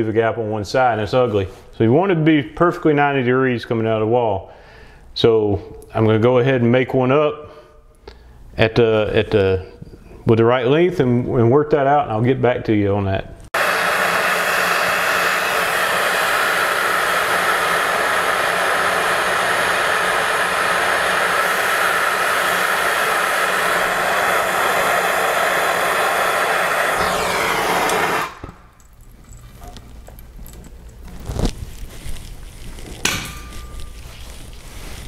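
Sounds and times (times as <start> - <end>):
torch flame hissing: 13.6 - 28.8.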